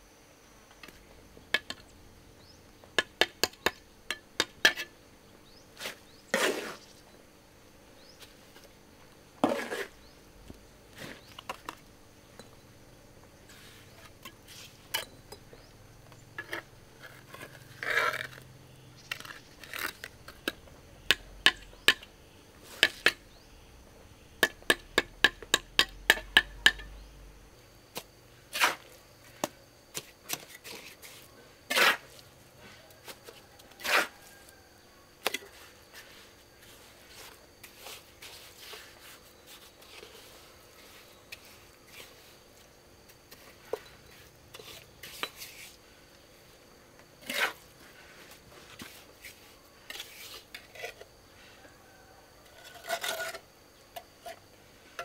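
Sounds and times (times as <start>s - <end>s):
short scrapes: 9.4s - 10.1s.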